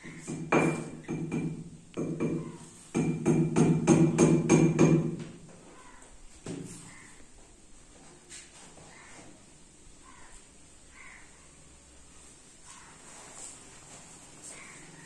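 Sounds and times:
hammer knocking nail into wall: 0.3s - 5.3s.

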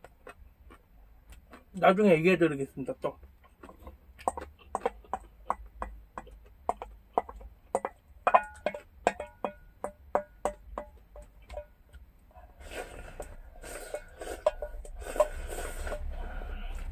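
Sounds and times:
wooden spoon knocking steel bowl: 4.2s - 12.0s, 13.9s - 15.3s.

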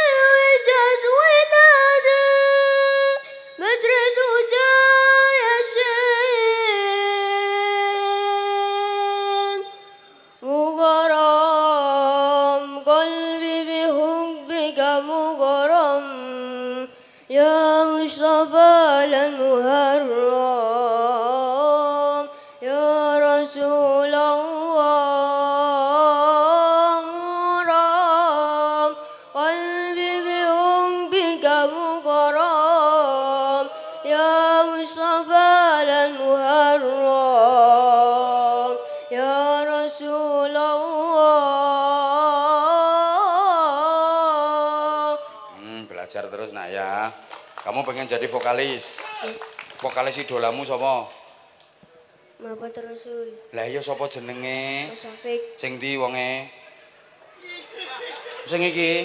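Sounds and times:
boy singing into microphone: 0.0s - 46.1s.

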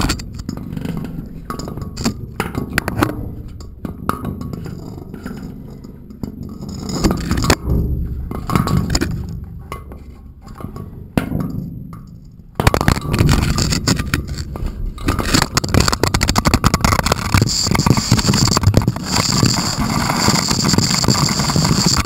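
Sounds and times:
camera scraping against stone wall: 12.7s - 22.0s.

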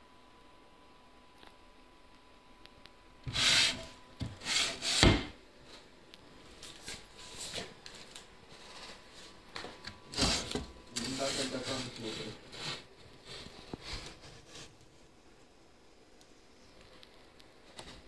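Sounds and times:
faint high hum: 0.0s - 18.0s
handling noise scraping: 3.3s - 5.3s, 10.0s - 14.8s.

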